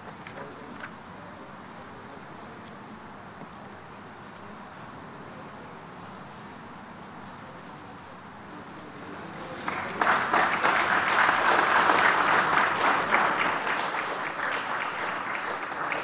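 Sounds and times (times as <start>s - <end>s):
audience applauding: 9.3s - 16.0s.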